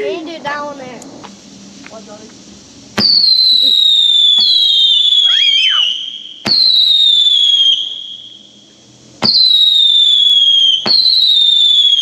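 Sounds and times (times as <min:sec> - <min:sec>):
firework launch pops: 0:02.9 - 0:08.2, 0:09.2 - 0:09.8, 0:10.5 - 0:12.0
falling firework whistle: 0:03.0 - 0:12.0.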